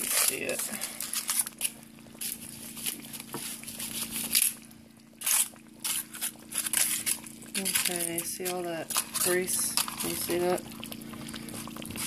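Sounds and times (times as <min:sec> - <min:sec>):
aluminium foil crinkling: 0:00.0 - 0:12.0.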